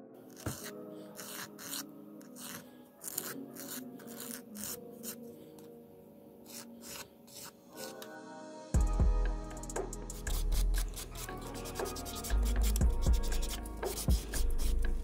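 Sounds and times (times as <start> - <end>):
soft background music: 0.0 - 15.0
nail file rasping: 0.3 - 5.2, 6.4 - 7.6, 10.2 - 15.0.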